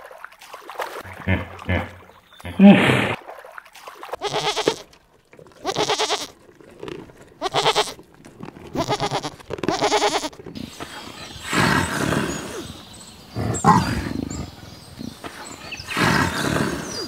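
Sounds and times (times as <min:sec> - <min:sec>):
sheep bleating: 0:04.2 - 0:04.8, 0:05.6 - 0:06.4, 0:07.4 - 0:08.0, 0:08.7 - 0:10.4
leopard roaring: 0:10.5 - 0:17.0.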